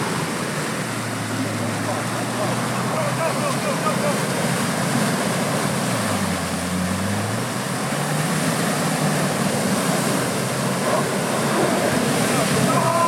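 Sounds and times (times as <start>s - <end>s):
engine pulling hard: 0.0s - 13.0s
mud and water splashing: 0.0s - 13.0s.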